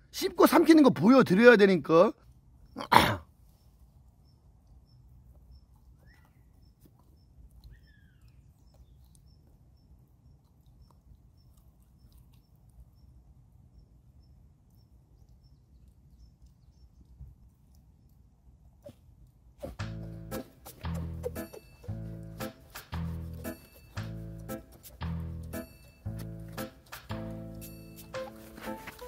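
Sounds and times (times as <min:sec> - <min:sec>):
bird chirps: 0:03.5 - 0:17.2, 0:19.6 - 0:29.0.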